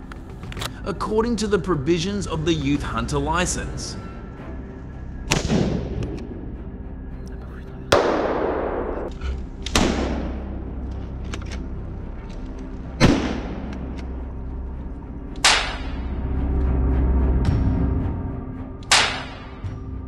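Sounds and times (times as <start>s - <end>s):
low steady music: 0.0s - 20.0s
gunshots echoing: 7.9s - 9.1s, 9.7s - 10.5s, 13.0s - 13.8s, 15.4s - 16.0s, 18.9s - 19.6s.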